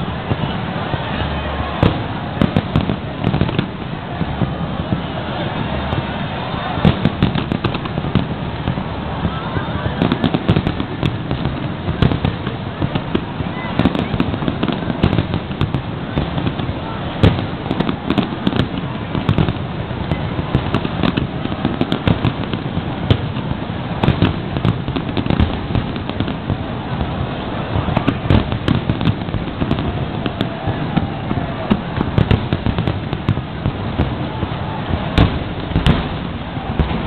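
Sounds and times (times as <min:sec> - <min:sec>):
fireworks bangs and crackling: 0:00.0 - 0:37.0.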